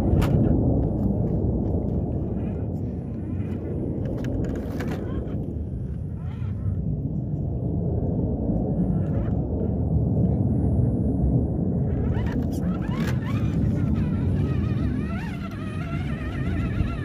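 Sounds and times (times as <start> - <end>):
wind buffeting microphone: 0.0 - 17.0
electric motor and gears whining: 11.8 - 17.0.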